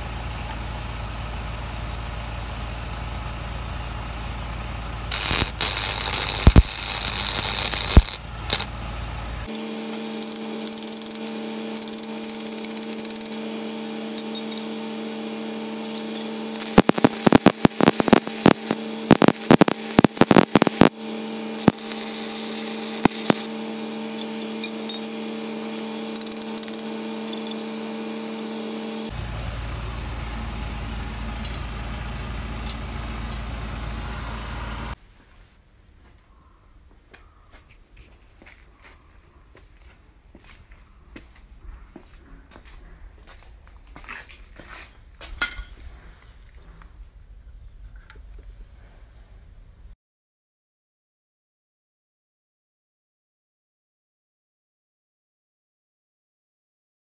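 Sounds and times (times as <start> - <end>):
steady machine hum: 4.7 - 35.0
arc welding crackles and pops: 5.1 - 8.7, 9.8 - 14.7, 15.8 - 29.6.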